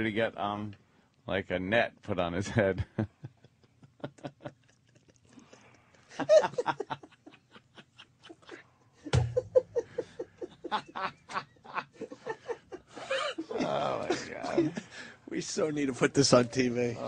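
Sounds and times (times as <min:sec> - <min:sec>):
people laughing: 0:06.1 - 0:08.8, 0:09.4 - 0:15.2.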